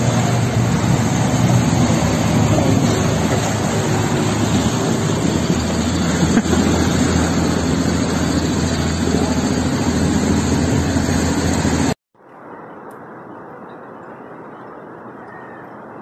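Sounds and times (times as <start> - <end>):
floodwater roaring: 0.0 - 12.5.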